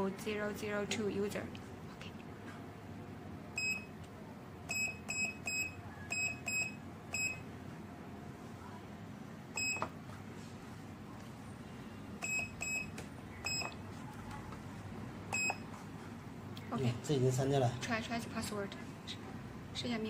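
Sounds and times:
keypad beeps: 0:03.6 - 0:03.9, 0:04.7 - 0:07.4, 0:09.6 - 0:09.9, 0:12.2 - 0:13.8, 0:15.3 - 0:15.7.

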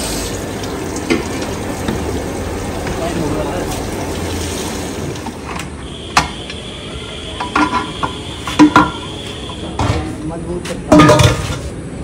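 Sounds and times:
running tap: 0:00.0 - 0:05.4
metal pots clinking: 0:07.4 - 0:09.1, 0:10.9 - 0:11.7.

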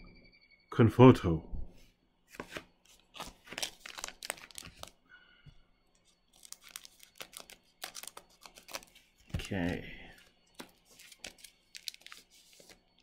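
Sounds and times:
plastic wrapper crinkling: 0:02.3 - 0:05.0, 0:06.0 - 0:13.0.

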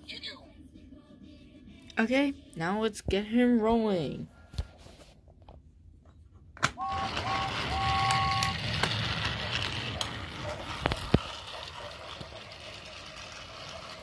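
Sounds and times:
electronic two-note whistle: 0:06.8 - 0:08.6
toy train motor whirring: 0:06.8 - 0:14.0.

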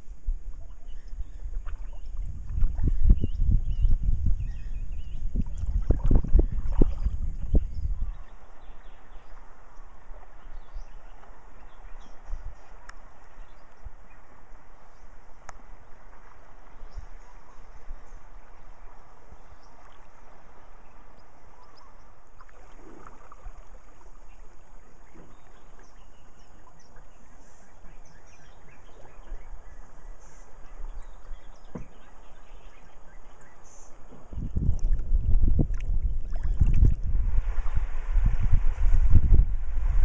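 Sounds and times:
moving water hiss: 0:00.0 - 0:40.0
wind rumble on microphone: 0:00.0 - 0:40.0
soft knock or splash: 0:31.6 - 0:32.1.

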